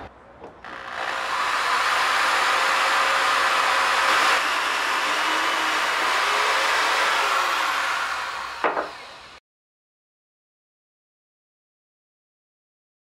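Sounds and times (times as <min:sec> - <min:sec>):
electric drill boring into wood: 0:00.6 - 0:09.4.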